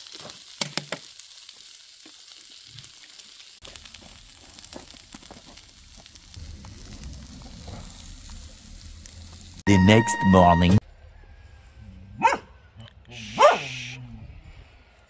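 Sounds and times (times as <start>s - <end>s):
food sizzling on a grill: 0.0s - 9.8s
low rumble: 3.6s - 9.7s.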